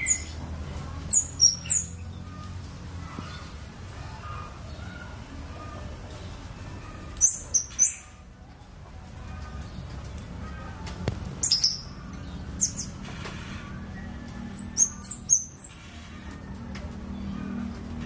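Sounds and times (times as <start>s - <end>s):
songbird high-pitched chirps: 0.0s - 3.6s, 4.4s - 8.3s, 11.4s - 13.0s, 13.8s - 15.8s.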